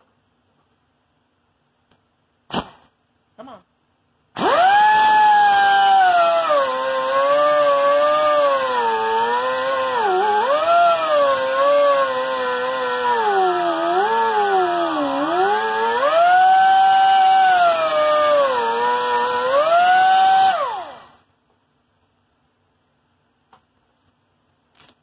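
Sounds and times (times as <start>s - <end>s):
power tool motor running: 4.4s - 21.2s.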